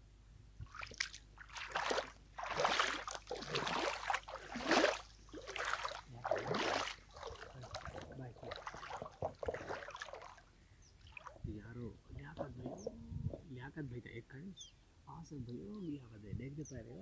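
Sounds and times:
river water splashing: 0:00.6 - 0:11.4.

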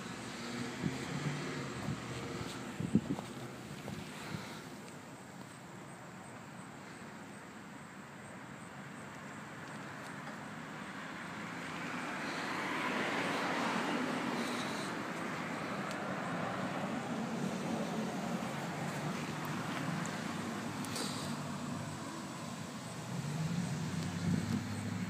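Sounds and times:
vehicle passing: 0:00.0 - 0:04.6, 0:10.6 - 0:25.0
low traffic rumble: 0:00.0 - 0:25.0.

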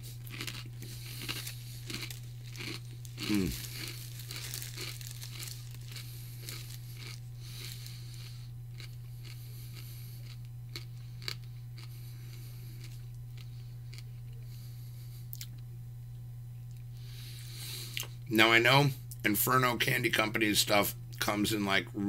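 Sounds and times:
steady low hum: 0:00.0 - 0:22.0
plastic snack bag crinkling: 0:00.1 - 0:08.3.

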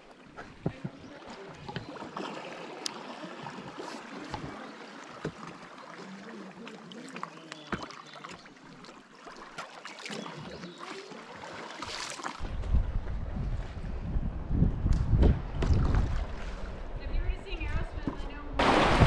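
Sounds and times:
water splashing and dripping: 0:00.0 - 0:12.7, 0:18.6 - 0:19.0
water lapping against hull: 0:00.0 - 0:14.3, 0:15.3 - 0:17.3
paddle pulling through water: 0:00.0 - 0:14.4, 0:15.4 - 0:17.1.

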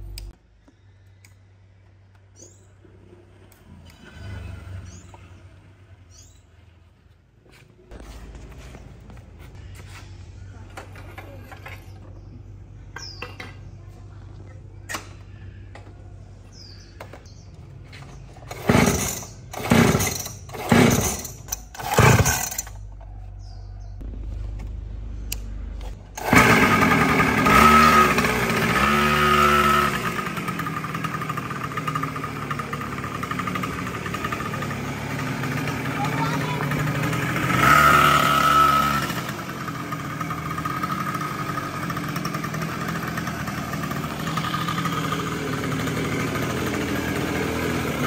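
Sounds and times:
two-stroke engine running: 0:15.2 - 0:22.9, 0:24.0 - 0:48.0
engine kick-start kicks: 0:18.1 - 0:22.9, 0:25.8 - 0:34.8.

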